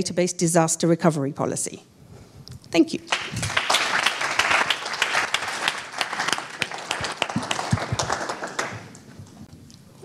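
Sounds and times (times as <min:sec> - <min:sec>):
audience applauding: 0:03.1 - 0:09.4.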